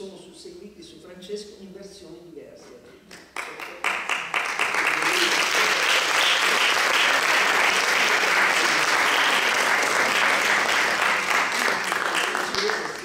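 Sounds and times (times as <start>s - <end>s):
people talking: 0.0s - 4.0s, 4.7s - 6.6s, 8.0s - 13.0s
audience applauding: 3.3s - 13.0s.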